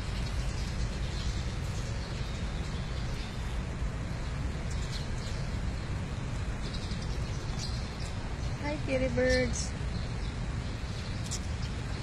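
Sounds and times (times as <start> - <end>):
low background rumble: 0.0 - 12.0.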